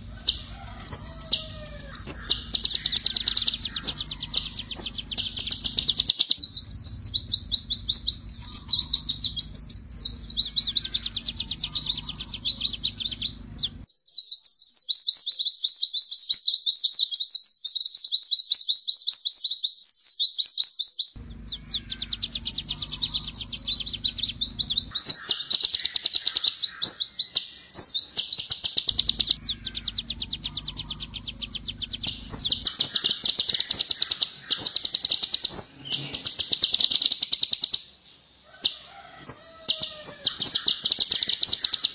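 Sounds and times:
bird chirping and trilling: 0:00.0 - 0:18.4, 0:20.8 - 0:41.9.

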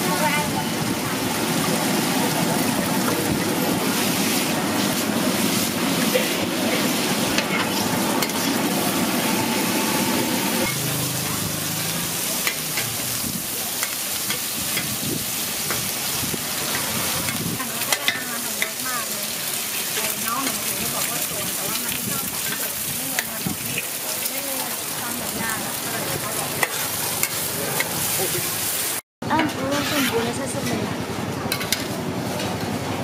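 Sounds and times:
noodles sizzling in a wok: 0:00.0 - 0:30.4
eggs frying on hot oil: 0:00.2 - 0:29.0
metal spatula scraping a pan: 0:29.3 - 0:30.7.

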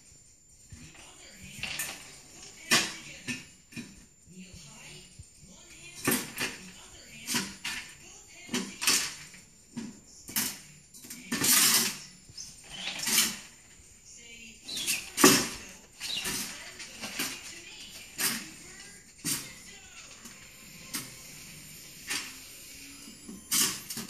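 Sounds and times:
metal dog bowl clanking and scraping: 0:07.3 - 0:13.7.

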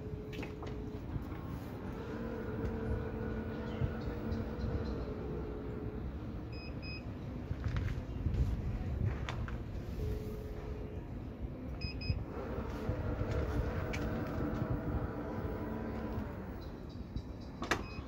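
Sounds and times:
electric motor whining: 0:01.5 - 0:06.2, 0:12.2 - 0:16.6
double warning beep: 0:06.5 - 0:07.1, 0:11.8 - 0:12.2.

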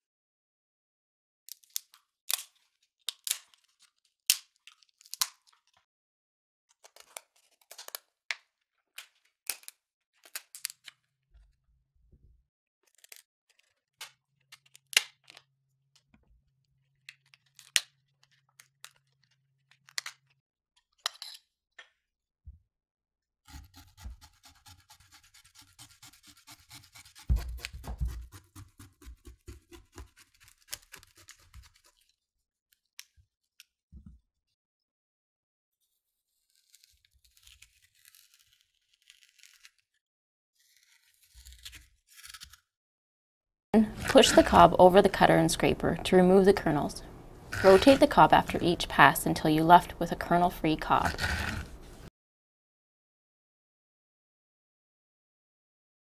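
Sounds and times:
blade sawing squash: 0:23.5 - 0:32.0, 0:47.5 - 0:48.6, 0:50.3 - 0:52.0.

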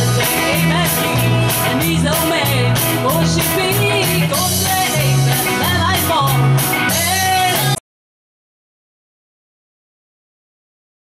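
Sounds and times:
live rock band playing: 0:00.0 - 0:07.8.

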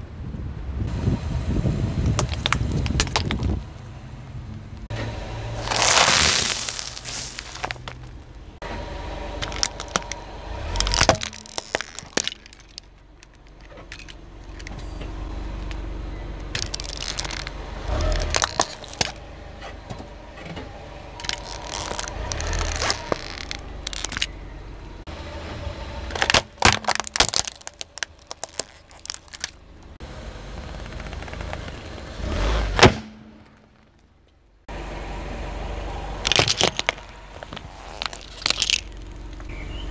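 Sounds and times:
car low rumble: 0:00.0 - 0:39.9
tyre crushing objects: 0:02.0 - 0:03.7, 0:05.6 - 0:08.3, 0:09.4 - 0:14.8, 0:16.6 - 0:19.2, 0:21.2 - 0:24.3, 0:26.1 - 0:29.6, 0:30.7 - 0:33.9, 0:36.2 - 0:39.0.

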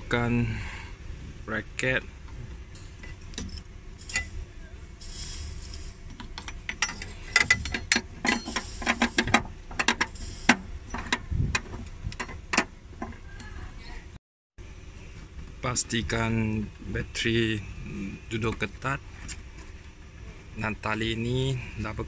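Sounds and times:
metal bracket clicks and knocks: 0:06.2 - 0:10.1.

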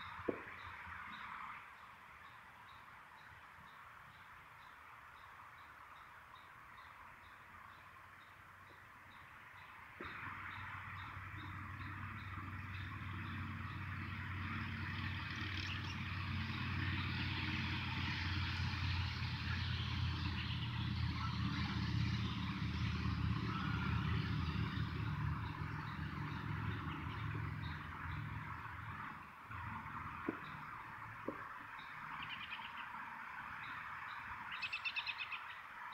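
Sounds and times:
vehicle engine passing: 0:10.0 - 0:34.5.

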